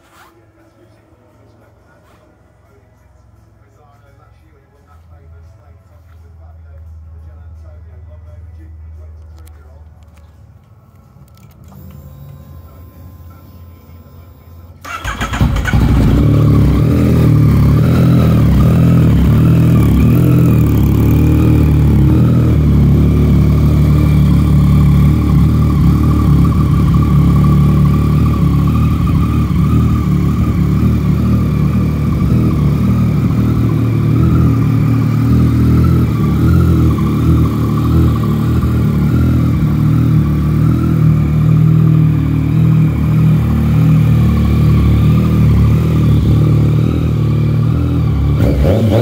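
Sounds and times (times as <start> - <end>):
motorcycle engine idling: 14.8 - 49.0.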